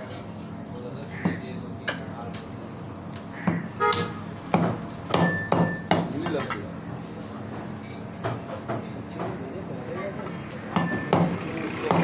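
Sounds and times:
cleaver chopping meat on wooden block: 4.5s - 6.2s, 10.7s - 12.0s.

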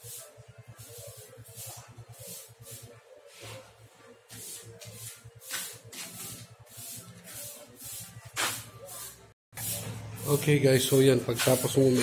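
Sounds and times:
motorcycle engine idling: 0.1s - 3.0s.

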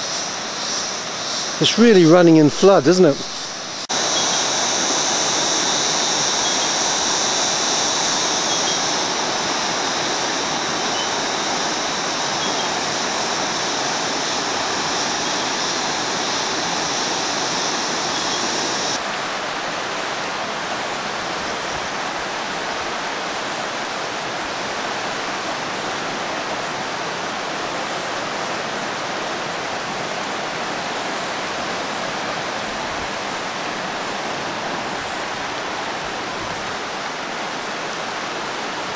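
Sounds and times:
high-pitched drone: 0.0s - 19.0s
river rushing over rapids: 0.0s - 38.9s.

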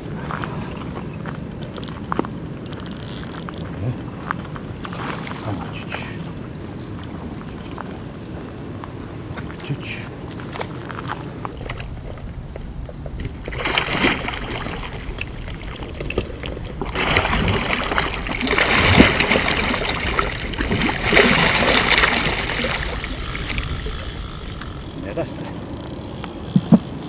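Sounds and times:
fish splashing in water: 11.5s - 26.9s.

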